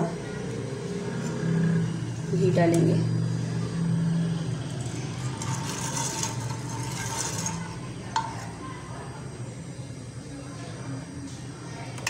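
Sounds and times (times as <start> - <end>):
ghee sizzling on a hot pan: 4.1 - 9.4.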